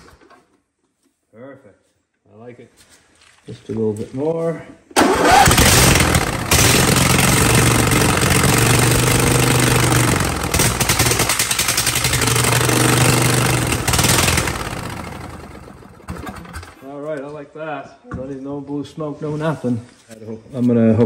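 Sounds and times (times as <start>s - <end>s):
lawn tractor engine running: 5.0s - 16.8s.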